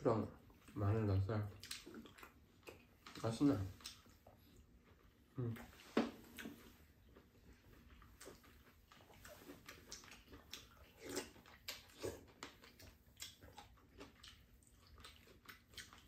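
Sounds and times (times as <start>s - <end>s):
chewing: 0.2s - 16.0s
mouth smacks and clicks: 1.6s - 4.4s.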